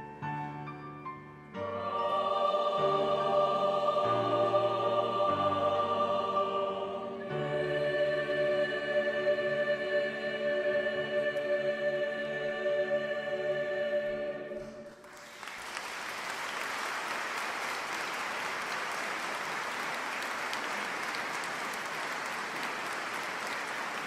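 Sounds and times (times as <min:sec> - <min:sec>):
choir singing held chord: 0:01.6 - 0:15.0
audience applauding: 0:14.9 - 0:24.0.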